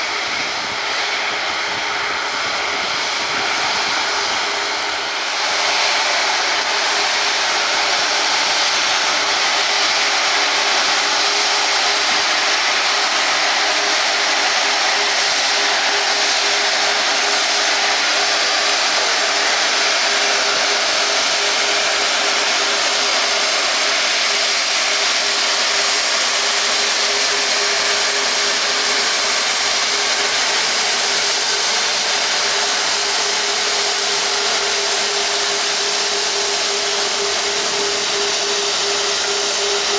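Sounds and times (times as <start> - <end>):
jet engines idling: 0.0 - 39.9
low hum: 32.9 - 39.9.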